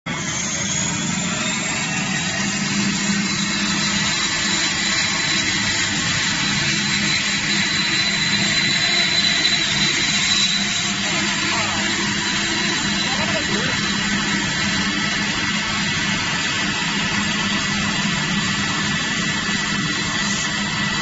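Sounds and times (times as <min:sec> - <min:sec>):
foam cutting machine humming: 0:00.1 - 0:21.0
high-pitched tone: 0:02.1 - 0:15.0.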